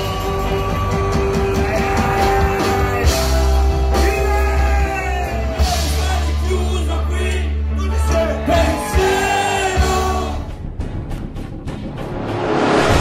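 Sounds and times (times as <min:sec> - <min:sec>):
rock band playing live: 0:00.0 - 0:13.0.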